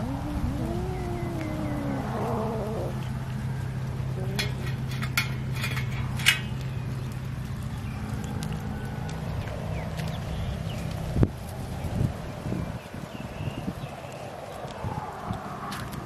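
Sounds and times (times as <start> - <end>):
cats mewing: 0.0 - 4.9
steady low hum: 0.0 - 10.7.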